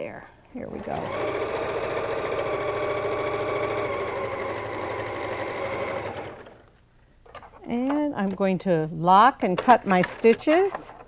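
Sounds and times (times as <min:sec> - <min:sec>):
sewing machine running: 0:00.7 - 0:06.6.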